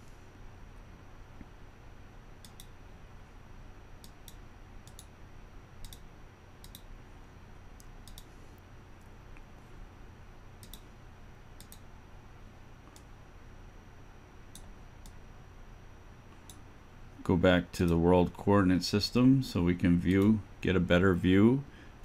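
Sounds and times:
faint steady hum: 0.0 - 22.0
computer mouse clicking: 2.4 - 2.8, 4.0 - 5.2, 5.8 - 6.9, 7.8 - 8.3, 10.6 - 10.9, 11.6 - 11.9, 12.9 - 13.1, 14.5 - 15.2, 16.3 - 16.6.

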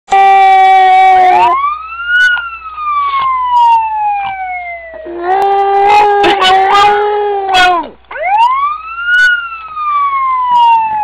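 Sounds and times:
wailing emergency siren: 0.1 - 11.0
puppy howling: 0.3 - 1.6, 5.0 - 8.6.

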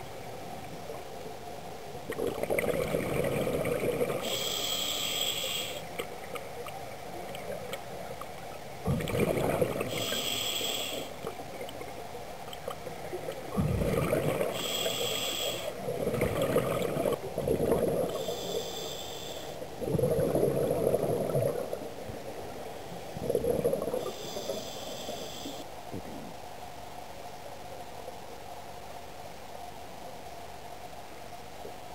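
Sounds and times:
exhalation bubbling rumble: 2.1 - 4.3, 8.8 - 10.0, 13.5 - 14.6, 15.8 - 18.2, 19.8 - 21.8, 23.2 - 24.2
regulator inhalation hiss: 4.2 - 5.9, 9.9 - 11.2, 14.5 - 15.8, 18.2 - 19.6, 24.0 - 25.7.

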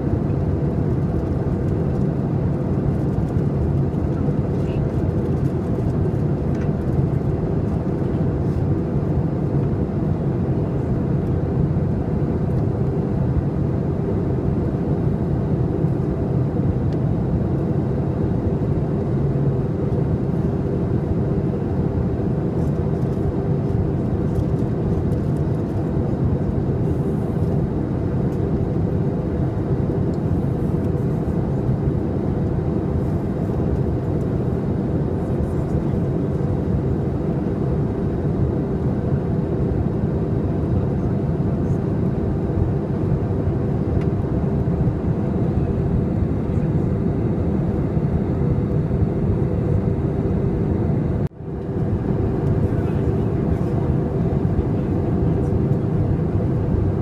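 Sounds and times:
aircraft cabin engine drone: 0.0 - 57.0.

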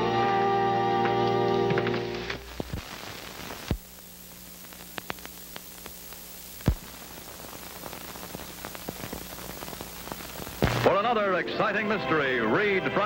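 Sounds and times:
film soundtrack hiss: 0.0 - 13.0
clicks and crackles: 1.0 - 10.9
loud pops: 1.6 - 11.0.

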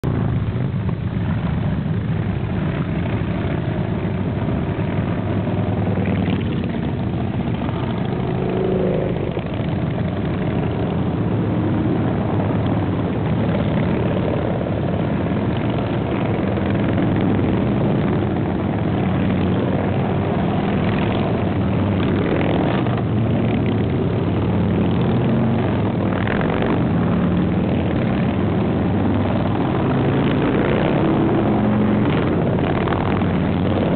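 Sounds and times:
motorcycles riding past: 1.2 - 33.9.

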